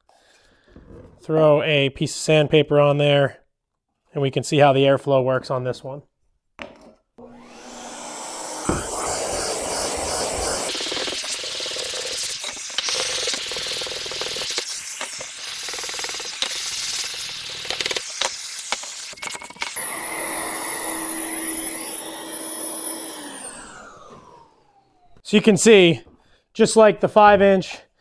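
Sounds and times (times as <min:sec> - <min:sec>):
shop vacuum hiss: 0:07.3 - 0:19.2
sanding block rubbing on wood: 0:08.6 - 0:18.9.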